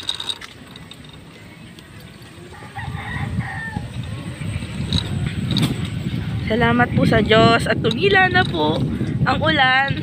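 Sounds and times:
low rumble: 2.2 - 10.0
rooster crowing: 2.5 - 4.1.

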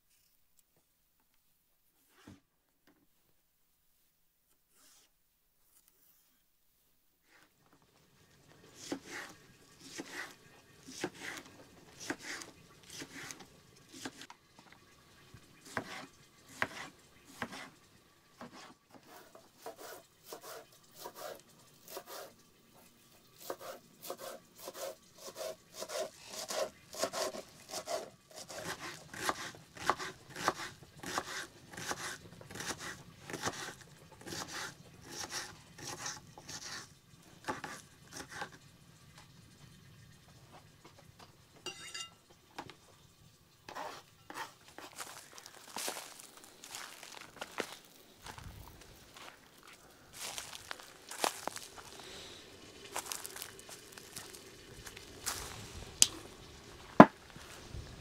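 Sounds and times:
chopping wood: 57.0 - 57.2.

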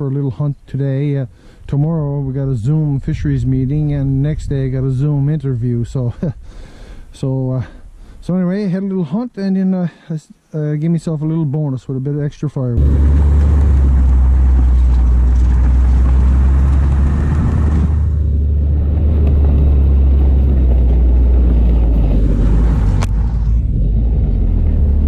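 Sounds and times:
snowmobile engine droning: 12.8 - 25.0.

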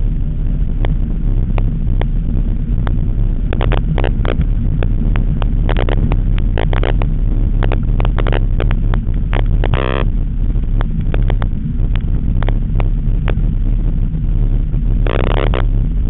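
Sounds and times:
car engine drone from inside cabin: 0.0 - 16.0
sharp clicks and rattles: 2.8 - 13.4, 15.0 - 15.7.

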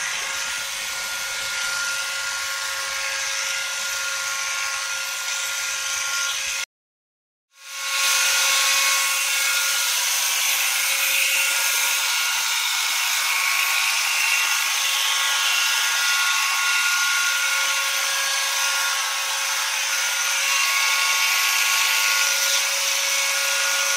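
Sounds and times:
electric clippers whining: 0.0 - 6.6.

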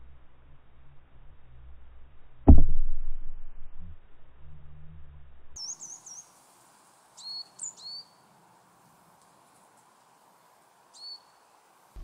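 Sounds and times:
small birds chirping: 5.6 - 12.0.

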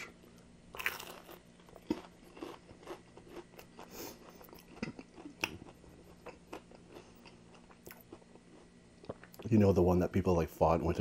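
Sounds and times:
crunching and chewing fried chicken: 0.0 - 9.5.

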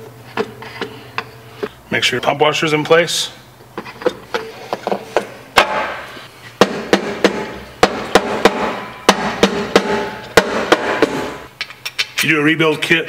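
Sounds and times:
hammer striking metal: 6.6 - 11.5.

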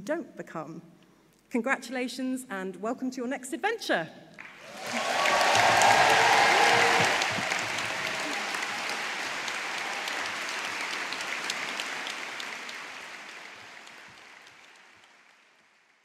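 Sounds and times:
large audience applauding: 4.4 - 16.0.

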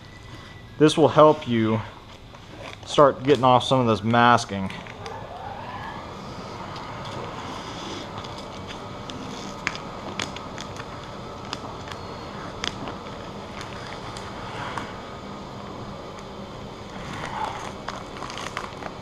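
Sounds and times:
steady background hum: 0.0 - 19.0
sharp crackling clicks: 8.2 - 12.0
masking tape being peeled: 16.9 - 19.0.

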